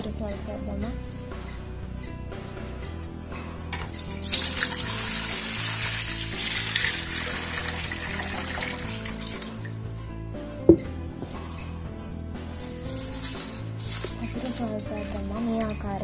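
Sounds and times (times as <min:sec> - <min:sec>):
water pouring into metal pot: 0:03.8 - 0:10.0.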